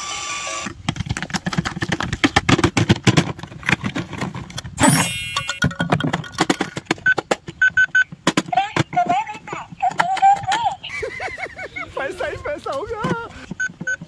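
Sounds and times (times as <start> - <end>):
clicks and knocks: 0.9 - 9.2
electronic keypad beeps: 4.8 - 5.6, 7.0 - 8.2, 13.5 - 14.0.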